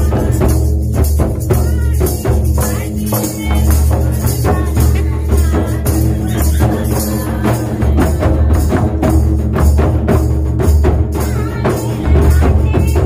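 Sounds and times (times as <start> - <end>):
tambourine jingling: 0.0 - 13.0.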